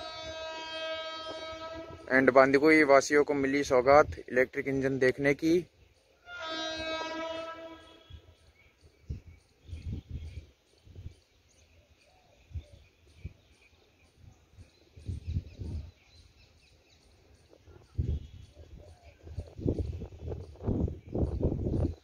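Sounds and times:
locomotive horn blast: 0.0 - 2.8, 6.2 - 8.7.

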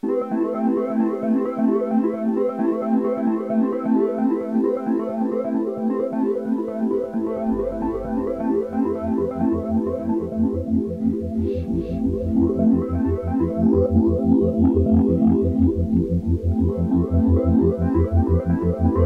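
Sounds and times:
bright keyboard tune: 3.4 - 15.7
bass line: 7.0 - 19.0.

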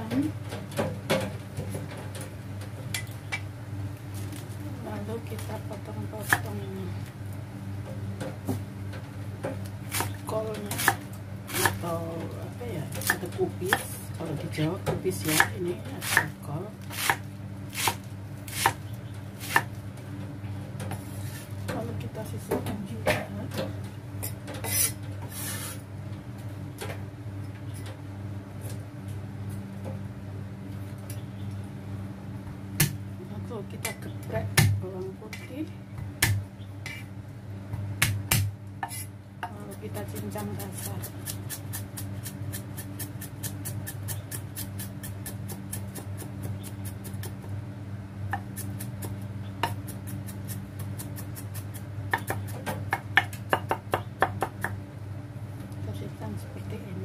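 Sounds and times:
steady low hum: 0.0 - 57.0
cleaver chopping on wooden block: 17.8 - 18.8, 36.2 - 36.4, 38.0 - 39.0, 52.1 - 54.8.

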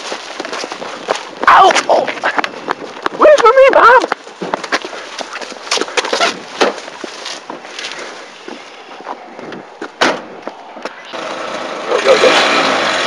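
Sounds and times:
knocks and thumps: 6.0 - 6.9, 9.1 - 11.0
car door shutting: 10.0 - 10.3
car engine starting and running: 10.1 - 13.0.

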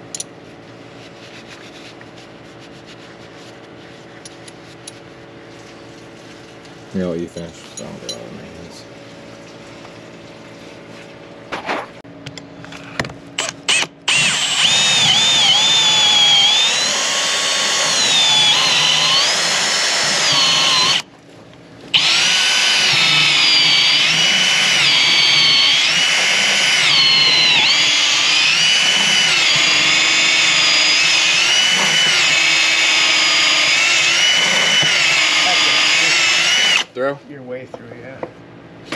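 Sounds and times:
power drill whining: 13.4 - 21.1, 21.9 - 36.9.

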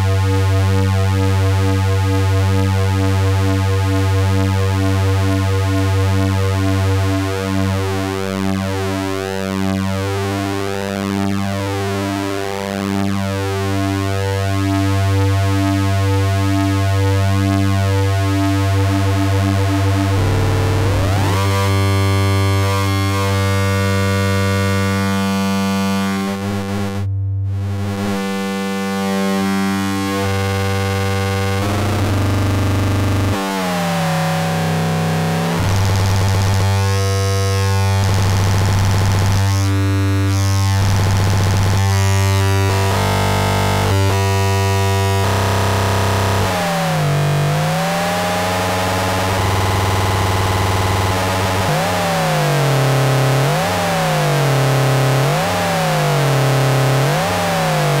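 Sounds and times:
synthesizer drone: 18.7 - 23.9.

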